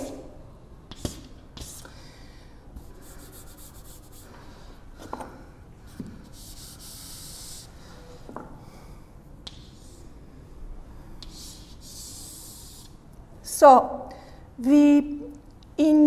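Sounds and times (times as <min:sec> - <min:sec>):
chalk taps: 0:00.9 - 0:01.8, 0:09.4 - 0:09.9, 0:11.2 - 0:12.9
chalk scraping on chalkboard: 0:02.8 - 0:04.3, 0:06.0 - 0:07.7, 0:11.2 - 0:13.0.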